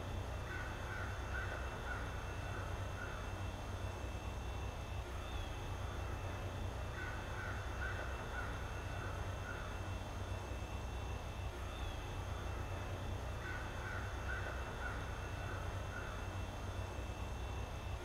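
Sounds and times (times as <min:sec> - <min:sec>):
crow cawing: 0:00.4 - 0:03.3, 0:06.9 - 0:09.7, 0:13.4 - 0:16.3.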